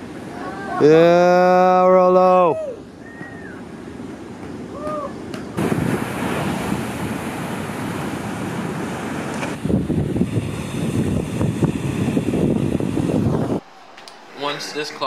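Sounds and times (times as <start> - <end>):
wind on microphone: 4.7 - 13.6
ocean surf breaking: 5.6 - 15.0.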